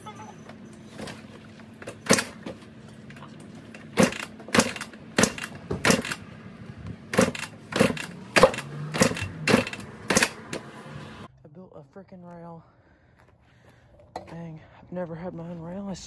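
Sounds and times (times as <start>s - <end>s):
dirt bike kick-starter clacking: 1.8s - 6.2s, 7.1s - 10.7s
engine turning over: 1.8s - 11.3s.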